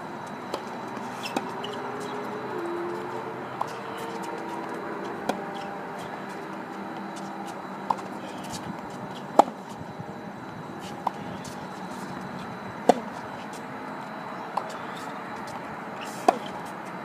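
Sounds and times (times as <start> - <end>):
tennis ball bouncing: 0.5 - 9.8, 10.8 - 13.2, 16.1 - 16.7
tennis racket striking ball: 7.9 - 9.7, 12.8 - 13.2, 16.1 - 16.7.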